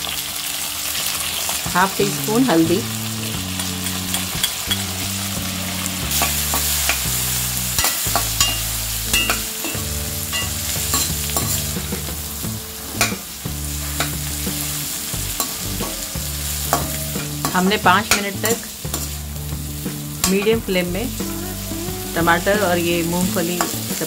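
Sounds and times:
food sizzling in oil: 0:00.0 - 0:24.0
metal spatula scraping a pan: 0:06.0 - 0:12.1, 0:12.8 - 0:20.5.

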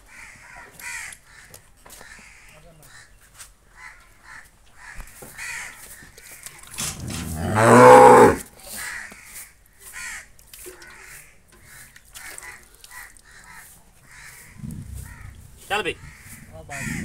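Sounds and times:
bird calls: 0:10.8 - 0:17.0.

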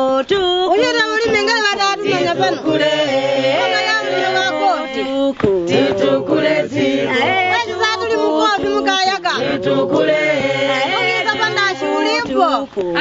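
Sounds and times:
group singing a work song: 0:00.0 - 0:13.0.

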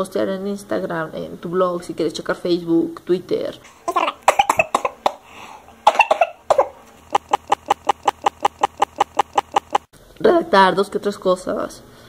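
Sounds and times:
person coughing: 0:03.9 - 0:05.2, 0:05.8 - 0:06.7
rapid short clicks: 0:06.9 - 0:09.9.

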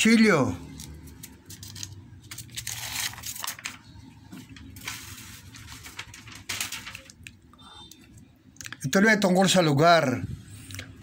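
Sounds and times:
paper rustling and crinkling: 0:00.7 - 0:07.4.

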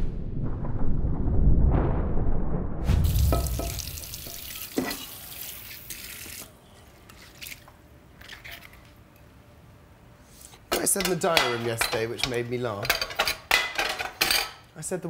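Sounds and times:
deep whooshing rumble: 0:00.0 - 0:04.0
tap water running: 0:03.0 - 0:06.5.

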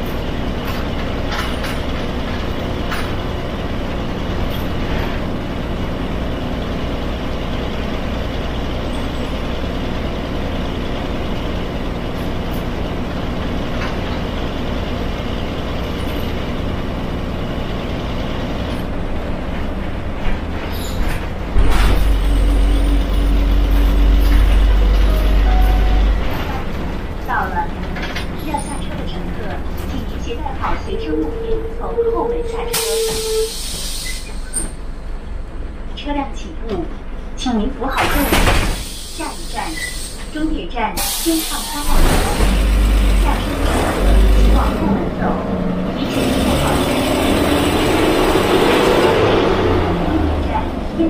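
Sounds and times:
bus engine running: 0:00.0 - 0:51.0
deep rumble with held tone: 0:08.6 - 0:33.5.

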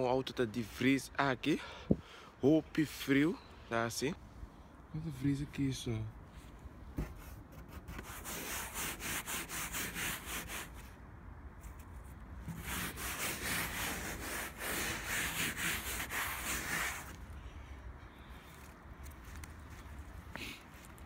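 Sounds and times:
hand scraping frost off car: 0:07.0 - 0:11.0, 0:11.6 - 0:17.3.

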